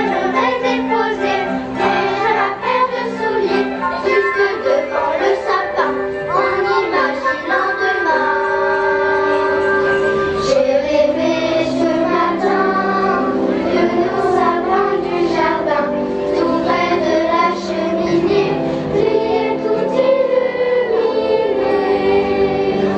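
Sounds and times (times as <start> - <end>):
children's choir singing: 0.0 - 22.9.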